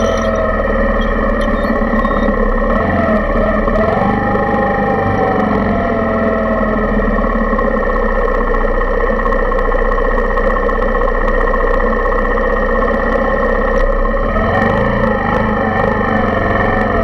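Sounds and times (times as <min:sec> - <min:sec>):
wavering tone: 0:00.0 - 0:06.5
motorcycle engine idling: 0:00.0 - 0:14.2.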